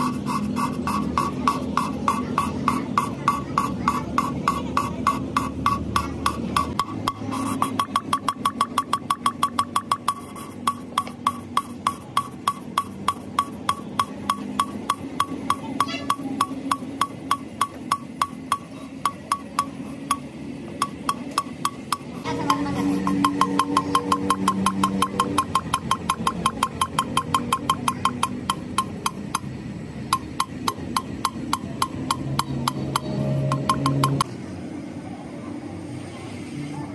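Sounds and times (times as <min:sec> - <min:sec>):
valve lapping ticks: 0:06.2 - 0:29.5, 0:30.1 - 0:34.2.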